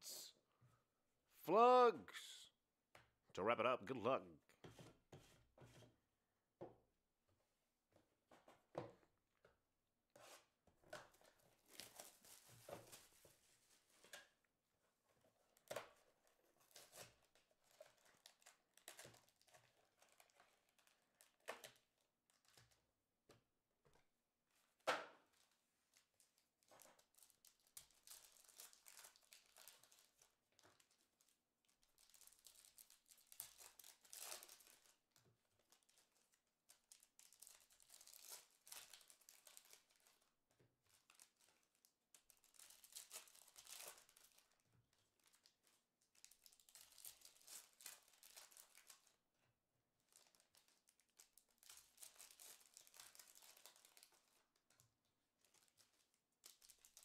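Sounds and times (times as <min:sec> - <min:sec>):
foil wrappers crinkling and tearing: 0:16.7 - 0:22.8, 0:25.9 - 0:40.3, 0:40.9 - 0:49.2, 0:50.1 - 0:54.8, 0:55.4 - 0:57.0.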